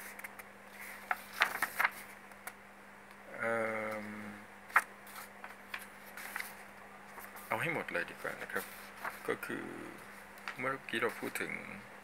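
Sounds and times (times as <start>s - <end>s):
faint steady hum: 0.0s - 12.0s
man humming: 3.3s - 4.5s, 9.4s - 10.0s.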